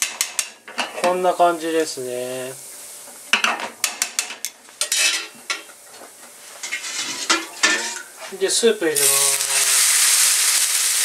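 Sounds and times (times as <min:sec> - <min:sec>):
metal tongs scraping a pan: 0:00.0 - 0:01.2, 0:03.3 - 0:06.0, 0:06.6 - 0:08.4
noodles sizzling in oil: 0:00.0 - 0:11.0.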